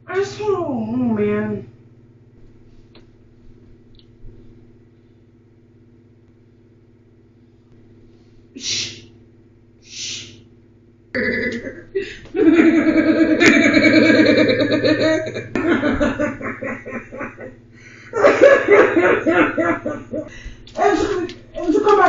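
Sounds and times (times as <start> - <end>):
low steady hum: 0.0 - 22.0
person shushing: 8.6 - 9.1, 9.8 - 10.4.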